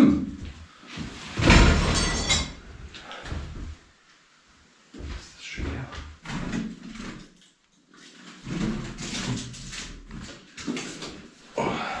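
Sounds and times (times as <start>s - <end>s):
man grunting and muttering: 11.5s - 12.0s.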